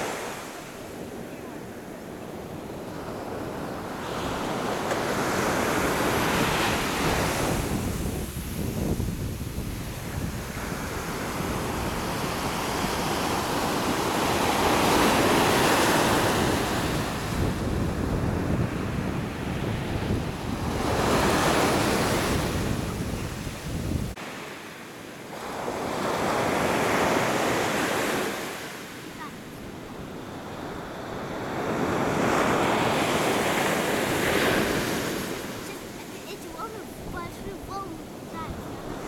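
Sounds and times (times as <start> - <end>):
surf breaking on beach: 2.9 - 39.0
wind rumble on microphone: 5.7 - 15.4, 16.0 - 24.2.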